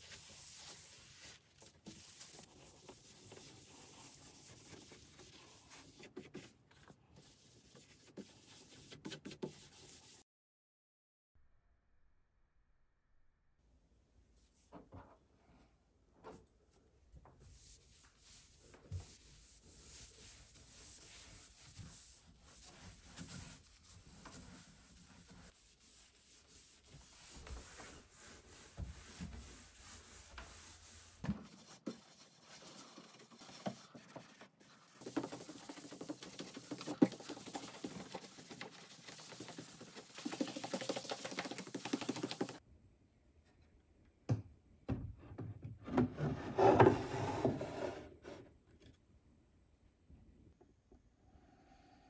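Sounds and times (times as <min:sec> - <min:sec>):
cloth rubbing on wood: 0:00.0 - 0:06.6, 0:18.2 - 0:42.6
wood rubbing on wood: 0:31.5 - 0:42.6.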